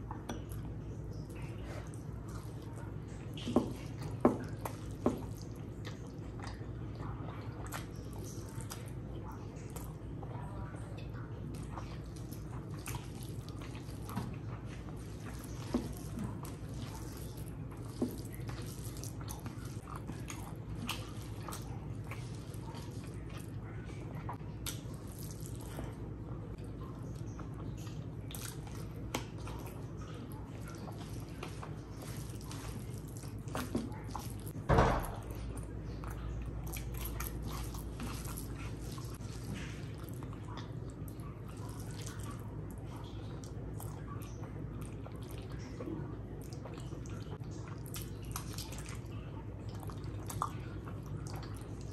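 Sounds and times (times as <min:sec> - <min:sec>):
mouth smacking and chewing: 0:00.0 - 0:34.6, 0:35.4 - 0:51.9
steady low hum: 0:00.0 - 0:51.9
hand squishing rice: 0:11.4 - 0:51.9.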